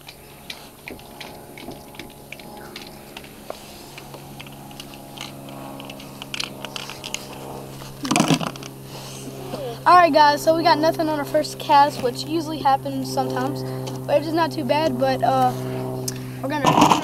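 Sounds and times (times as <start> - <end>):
handling noise: 0.0 - 8.8
steady low hum: 0.0 - 17.0.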